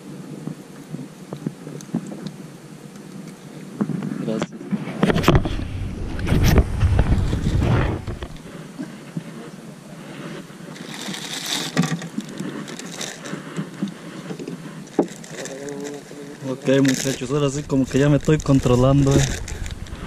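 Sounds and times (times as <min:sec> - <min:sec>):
wind rumble on microphone: 0:04.7 - 0:08.6, 0:17.0 - 0:20.0.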